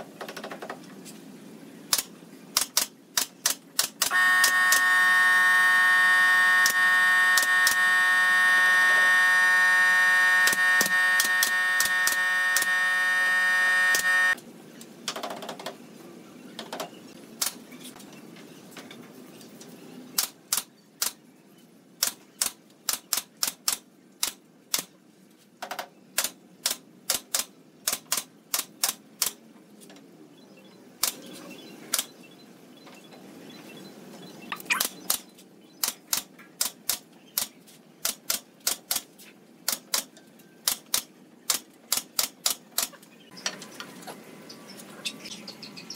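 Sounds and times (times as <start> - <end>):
nail gun firing: 1.9 - 4.9, 10.4 - 12.8, 40.7 - 43.0
loud steady machine whine: 4.1 - 14.4.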